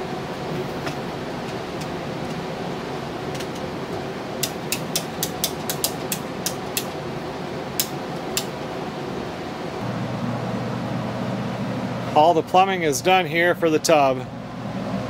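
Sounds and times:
steady rushing hum: 0.0 - 15.0
hand tool clicking: 4.4 - 7.0, 7.8 - 8.5.

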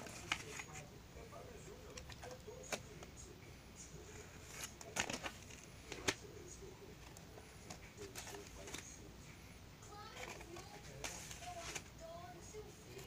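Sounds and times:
plastic sleeves rustling: 0.0 - 0.9, 1.8 - 3.1, 4.1 - 12.3.

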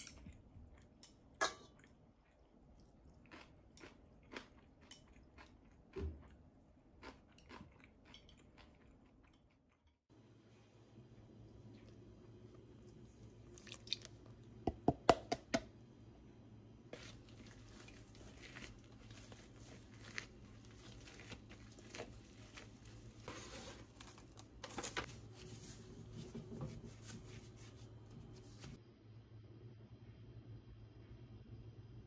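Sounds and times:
hands kneading dough: 16.8 - 28.8.

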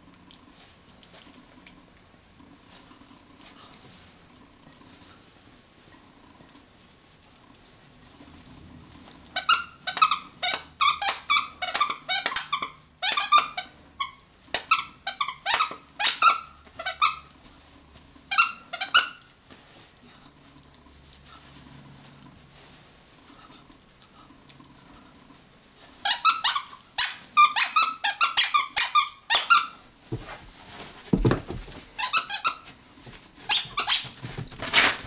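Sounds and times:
squeaky toy squeaking: 9.4 - 17.3, 18.3 - 19.2, 26.0 - 29.8, 32.0 - 32.7, 33.5 - 34.2.

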